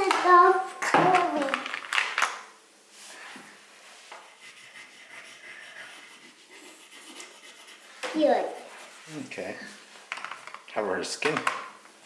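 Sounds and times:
crayons clicking in plastic tub: 0.0 - 2.5, 10.1 - 11.8
crayon rubbing on paper: 4.1 - 9.7.

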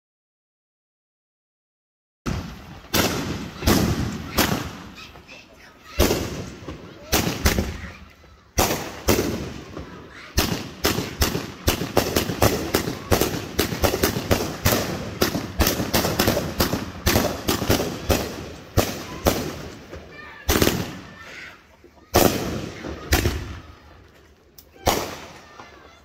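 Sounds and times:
fireworks bangs: 2.3 - 26.0.

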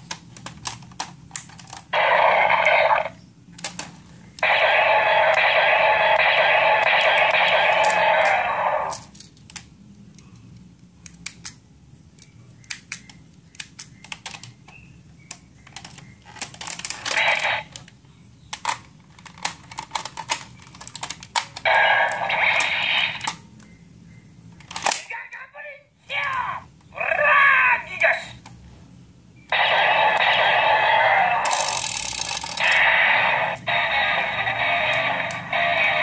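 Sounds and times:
electronic toy sound effects: 2.0 - 3.2, 4.4 - 9.1, 17.0 - 17.8, 21.7 - 23.4, 29.5 - 36.0
plastic toy gun clicks: 11.0 - 11.6, 12.2 - 14.6.

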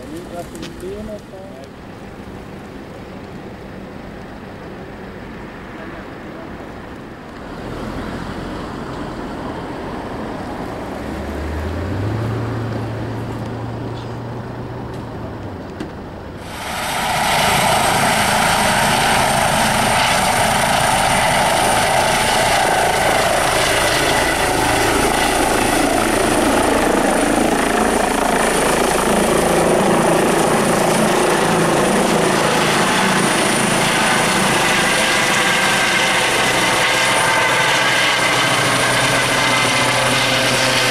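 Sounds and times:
helicopter lifting off: 16.4 - 40.9.

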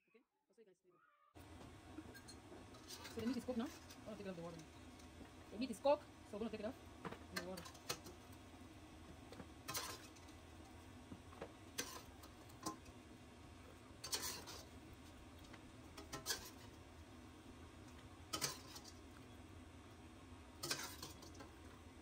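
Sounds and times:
metal spoon scraping a pot: 2.1 - 4.0, 9.7 - 10.3, 11.8 - 12.9, 14.0 - 14.8, 16.0 - 16.8, 18.3 - 19.0, 20.6 - 21.5.

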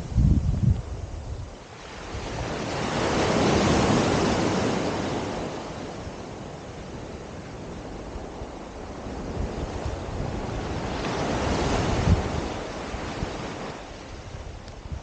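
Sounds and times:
wind rumble on microphone: 0.0 - 15.0
wave breaking on sand: 1.7 - 6.0.

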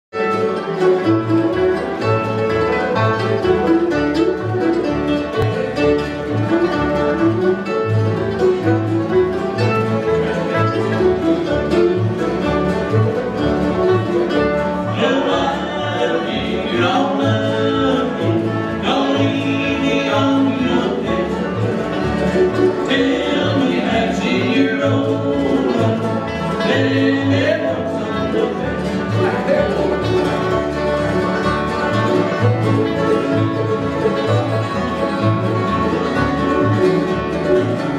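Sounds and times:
acoustic guitars: 0.1 - 37.9
banjo: 0.1 - 37.9
mandolin: 0.1 - 37.9
plucked upright bass: 0.1 - 37.9
people singing: 14.8 - 21.7, 22.5 - 29.8.

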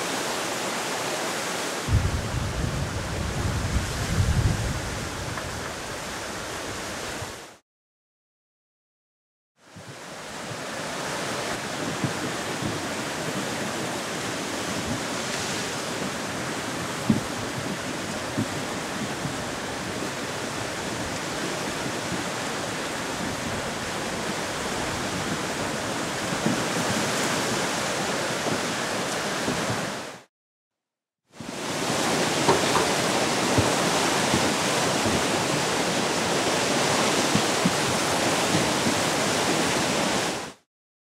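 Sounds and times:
low thump: 1.9 - 5.5.

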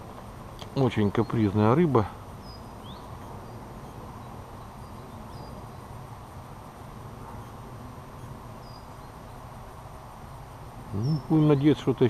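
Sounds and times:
faint high chirp: 2.4 - 5.9, 7.2 - 9.5.

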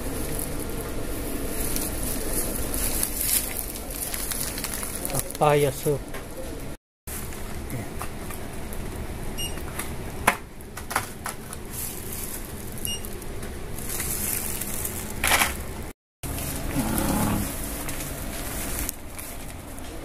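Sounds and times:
rustling: 0.0 - 5.8, 11.4 - 20.0.

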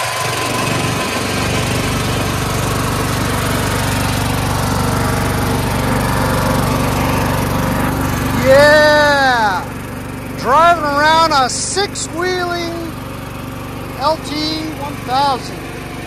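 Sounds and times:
lawn tractor engine running: 0.0 - 16.0.

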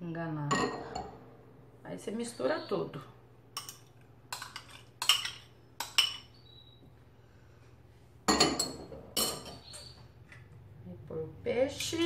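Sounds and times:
metal spoon clinking on steel bowl: 3.6 - 6.3.

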